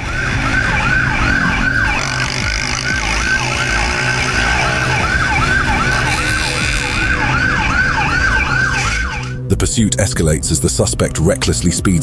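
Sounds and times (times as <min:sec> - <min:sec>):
police siren yelping: 0:00.0 - 0:09.4.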